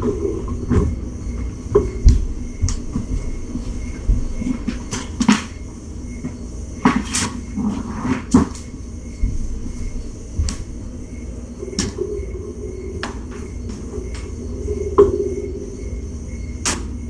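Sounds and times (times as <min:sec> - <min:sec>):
background hum: 0:00.0 - 0:17.0
knocks and clicks: 0:11.6 - 0:15.7.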